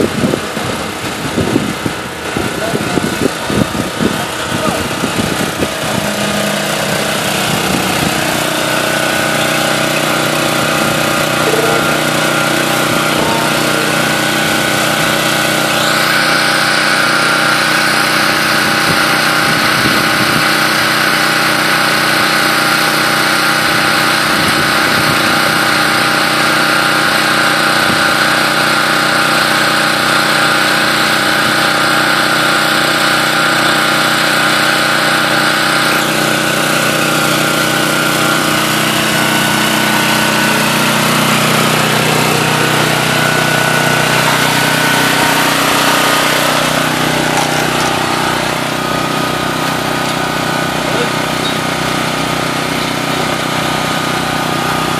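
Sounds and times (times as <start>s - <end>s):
engine running steadily: 0.0s - 54.9s.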